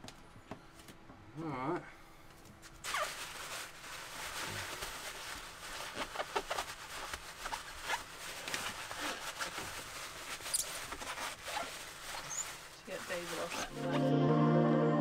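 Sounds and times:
paper towel rustling and crinkling: 2.5 - 14.0.

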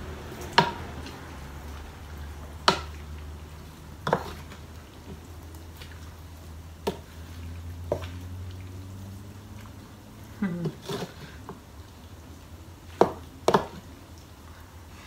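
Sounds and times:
oven fan humming: 0.0 - 15.0
wooden spoon knocking on steel pan: 0.6 - 0.8, 13.0 - 13.8.

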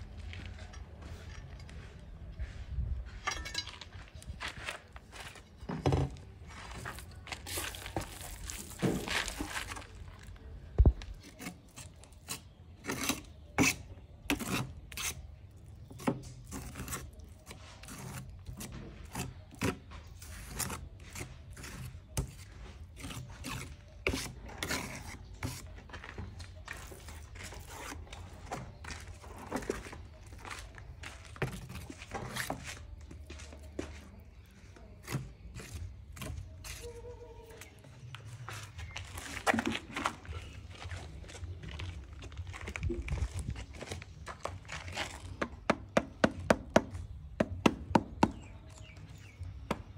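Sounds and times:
tools scraping on tile: 16.0 - 30.0.

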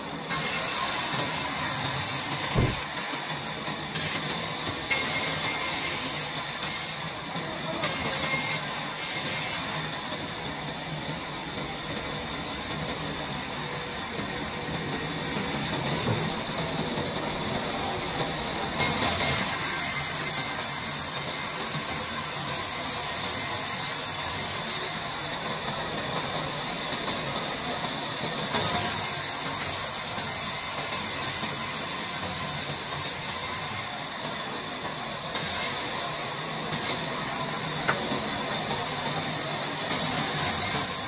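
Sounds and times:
band saw cutting through wood: 0.0 - 10.3, 18.7 - 25.2, 28.5 - 41.0.

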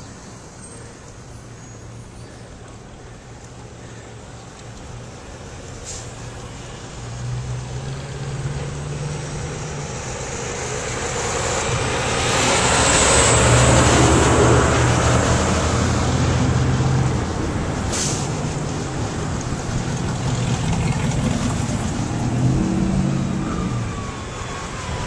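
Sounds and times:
road and wind noise: 0.0 - 25.0.

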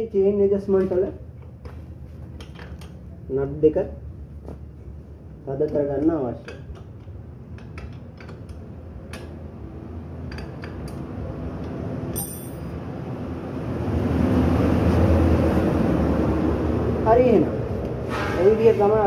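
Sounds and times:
chain whirring over sprocket: 12.1 - 12.8
light chain clinks: 12.1 - 12.8.

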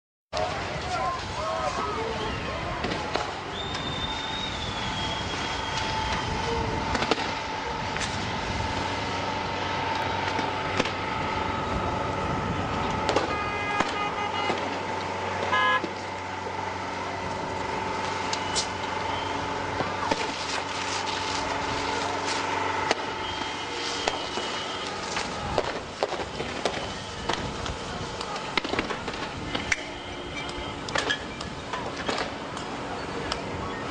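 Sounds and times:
water cannon rushing hiss: 0.6 - 12.6, 17.7 - 30.3
sharp bangs: 2.8 - 11.7, 12.7 - 16.1, 18.2 - 27.6, 28.2 - 31.3
steady horn tone: 3.9 - 27.4
short honks: 13.2 - 14.8, 15.4 - 16.0.

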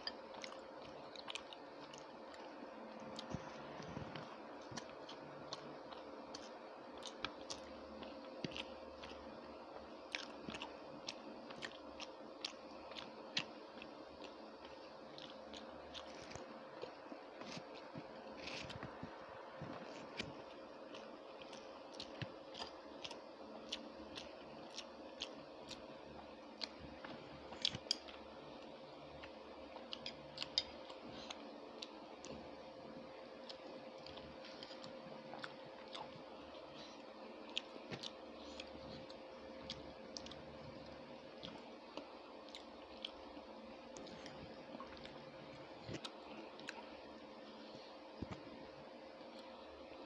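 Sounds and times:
chewing food: 0.0 - 47.2
faint hum: 0.0 - 50.0
chewing and mouth smacking: 33.4 - 43.3.

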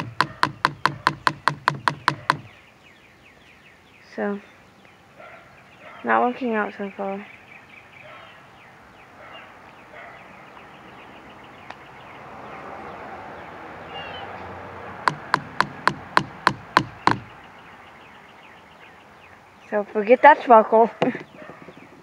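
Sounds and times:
sharp knocks: 0.0 - 2.5, 15.0 - 17.3
faint bird chirps: 13.9 - 14.3.

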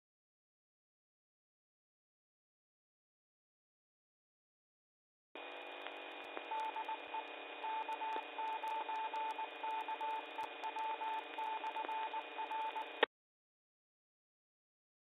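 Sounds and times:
radio static hiss: 5.4 - 13.1
morse code tone beeping: 6.4 - 13.0.

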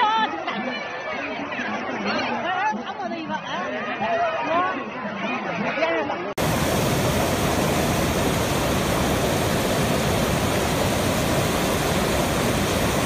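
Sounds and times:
water flowing over rocks: 6.4 - 13.0.

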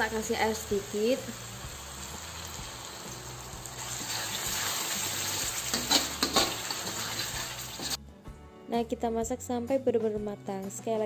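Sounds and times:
spice paste sizzling in wok: 0.0 - 8.0
metal spatula scraping wok: 3.7 - 8.0.

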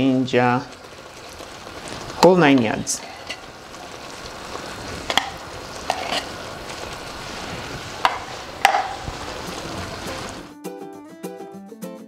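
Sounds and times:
soup bubbling in a pan: 0.0 - 10.5
music: 9.4 - 12.0.

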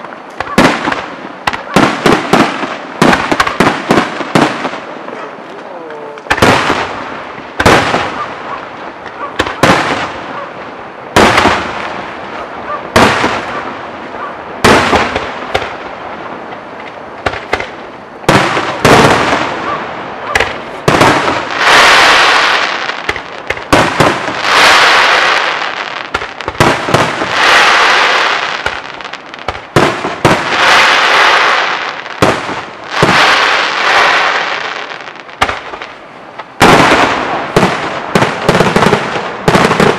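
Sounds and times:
firework bangs: 0.0 - 5.4, 6.1 - 16.0, 16.8 - 39.9
drawn-out firework bursts: 0.0 - 39.9.

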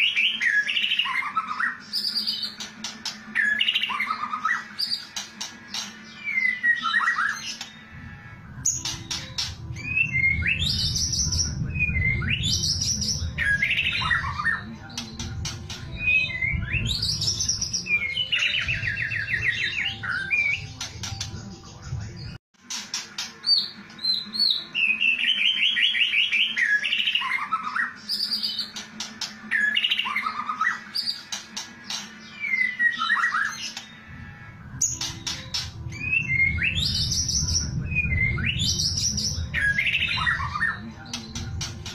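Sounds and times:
bird singing varied song: 0.0 - 41.9
songbird whistling: 31.9 - 33.9, 34.9 - 40.8.

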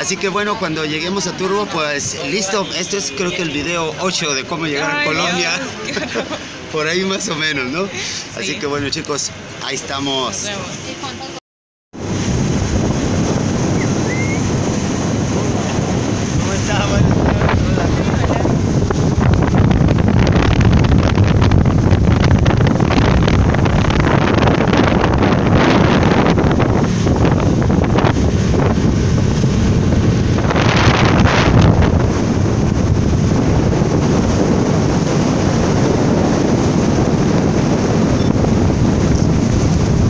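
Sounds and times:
boat and water noise: 0.0 - 40.0
wind buffeting microphone: 12.0 - 40.0.

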